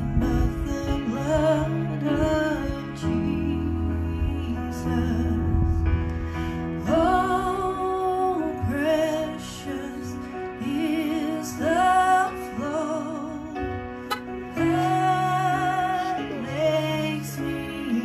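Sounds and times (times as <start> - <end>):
electric keyboard chords: 0.0 - 18.0
woman singing a hymn: 6.8 - 18.0.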